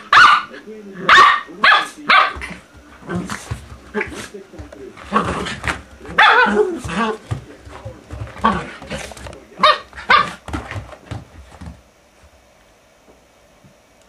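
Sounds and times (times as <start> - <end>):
dogs barking in play: 0.0 - 11.4.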